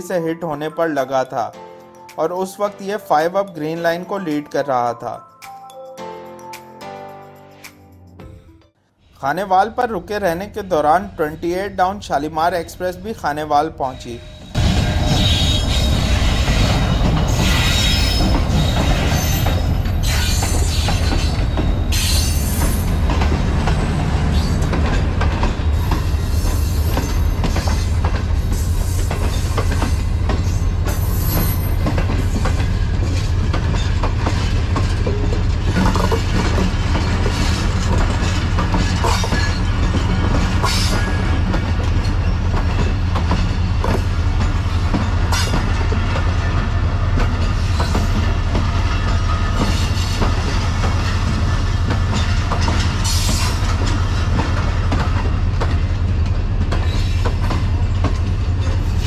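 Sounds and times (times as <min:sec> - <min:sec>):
diesel locomotive engine rumble: 0:10.3 - 0:59.0
train wheels squealing: 0:13.8 - 0:22.9, 0:25.6 - 0:27.9, 0:28.5 - 0:34.0, 0:52.1 - 0:54.0
wheels clattering over rail joints: 0:14.6 - 0:59.0.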